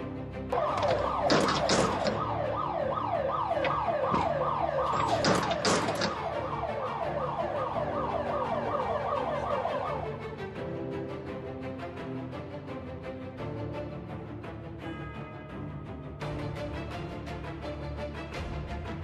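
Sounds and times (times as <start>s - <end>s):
faint background music: 0.0s - 19.0s
sharp metal clanks: 0.6s - 2.2s
electronic warning alarm: 0.6s - 10.1s.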